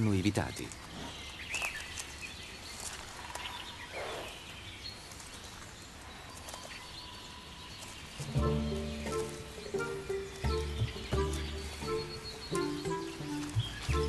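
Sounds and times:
faint bird calls: 0.6 - 14.0
background music with held tones: 8.2 - 14.0.

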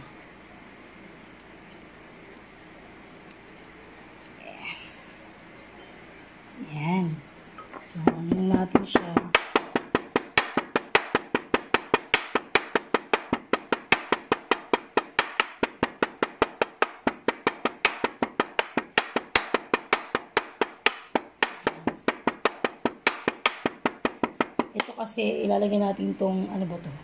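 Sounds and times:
pestle pounding in stone mortar: 8.0 - 25.0.

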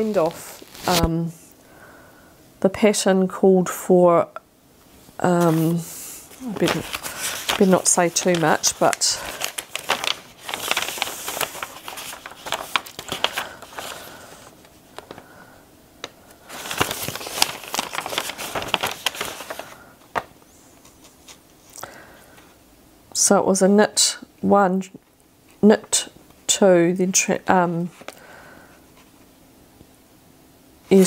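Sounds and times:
paper pages rustling: 0.0 - 1.2, 5.2 - 15.3, 16.0 - 21.8, 27.8 - 28.2.

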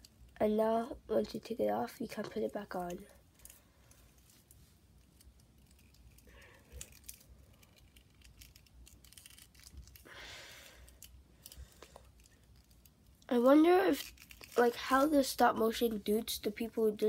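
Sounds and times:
soft rustle: 2.1 - 16.9
plastic figure parts clicking: 5.1 - 10.1.

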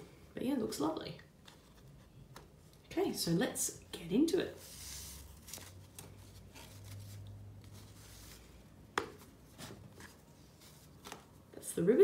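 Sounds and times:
ribbon rustling and sliding: 4.6 - 11.4.

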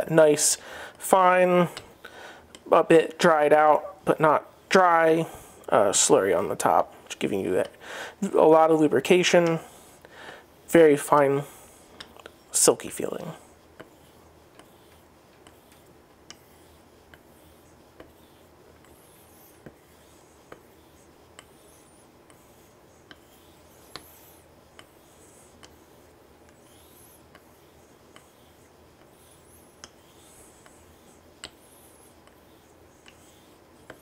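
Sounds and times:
razor scratching on whetstone: 12.1 - 34.0
light ticks of blade turning: 13.8 - 17.2, 21.3 - 34.0.

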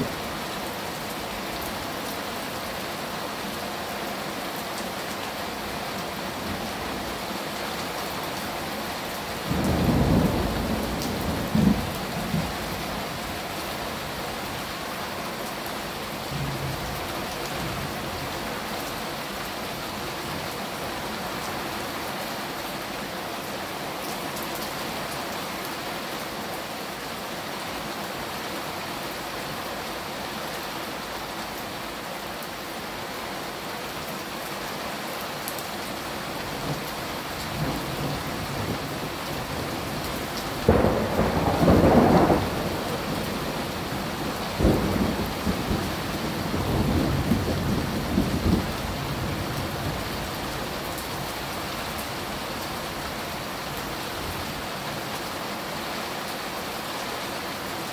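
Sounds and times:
steady rain falling: 0.0 - 57.9
crackling thunder rumble: 9.5 - 13.2, 37.5 - 50.2.

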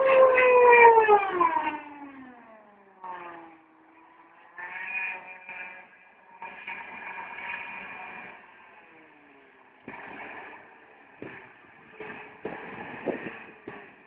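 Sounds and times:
turbine engines whining: 0.0 - 14.0
fainter steady whine: 5.2 - 14.0.

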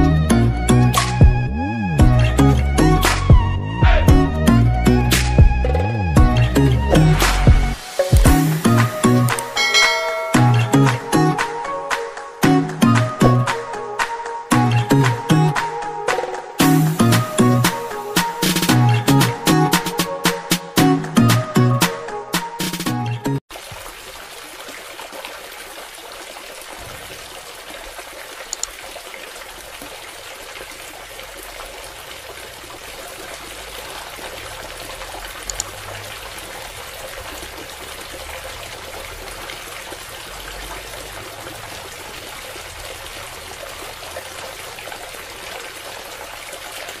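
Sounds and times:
water pouring onto wet soil: 23.5 - 47.0.

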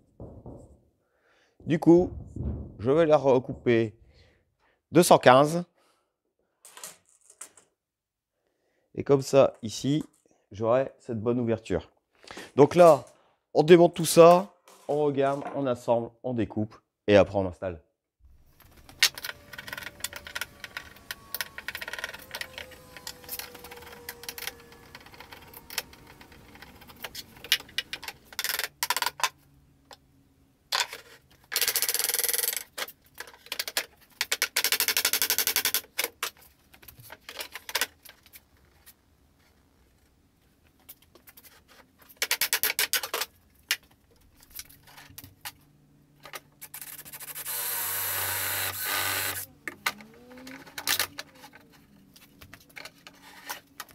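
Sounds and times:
knocks and clicks of hand tools: 0.1 - 0.8
cordless drill-driver running: 18.8 - 27.8, 46.8 - 49.5.

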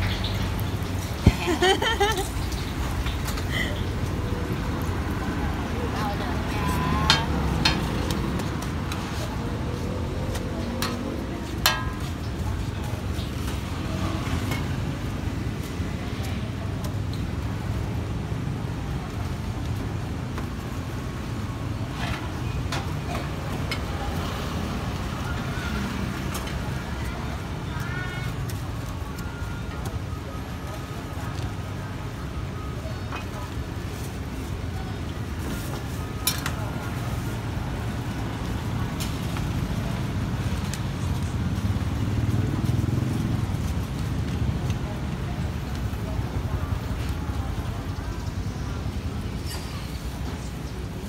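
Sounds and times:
vehicle engine rumbling: 0.0 - 51.0.

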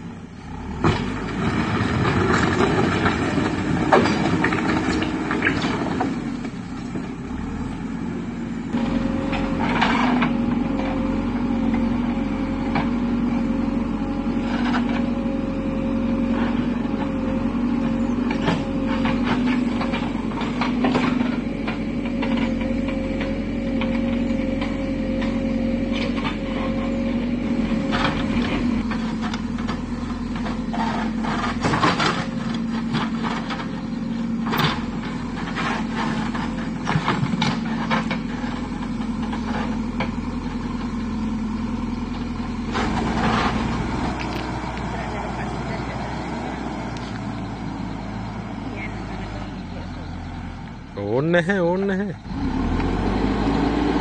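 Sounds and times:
diesel engine running: 0.0 - 54.0
bucket clanking and scraping soil: 8.8 - 11.0, 27.6 - 40.2, 42.7 - 46.0.

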